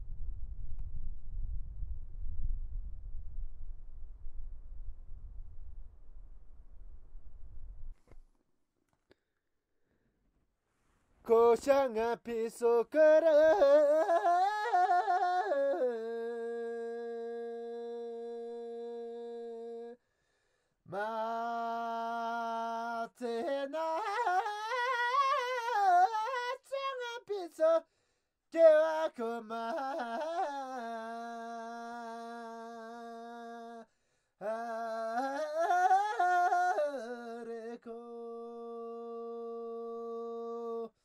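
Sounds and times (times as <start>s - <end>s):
person singing solo: 12.9s - 20.0s
singer breathing: 20.0s - 20.8s, 27.8s - 28.4s, 33.8s - 34.4s.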